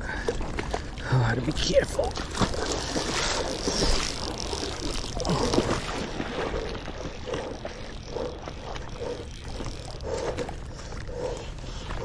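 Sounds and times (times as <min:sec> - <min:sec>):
wind and river rumble: 0:00.0 - 0:12.0
fly reel winding with clicks: 0:02.1 - 0:10.8.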